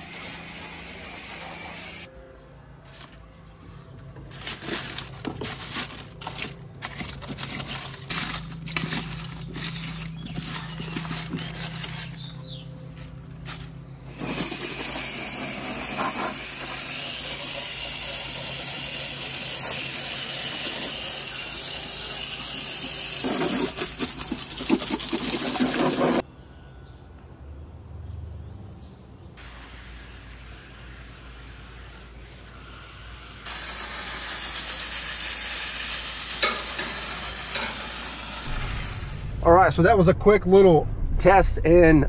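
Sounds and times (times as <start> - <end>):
hose spraying water: 0.0 - 2.1, 14.1 - 26.2, 29.4 - 39.6
low hum: 38.4 - 42.0.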